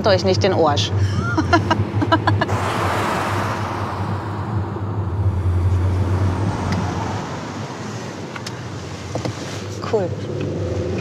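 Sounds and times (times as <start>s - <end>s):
low engine hum: 0.0s - 11.0s
tyre and wind rush: 2.0s - 8.3s.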